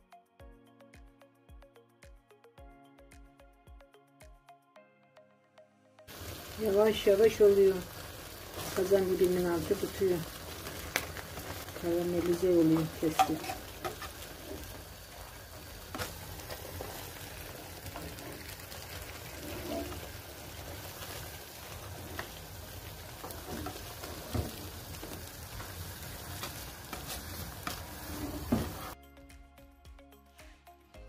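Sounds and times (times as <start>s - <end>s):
pudding sizzling and bubbling: 6.1s - 29.0s
utensil scraping metal tray: 13.0s - 14.8s, 19.3s - 20.1s.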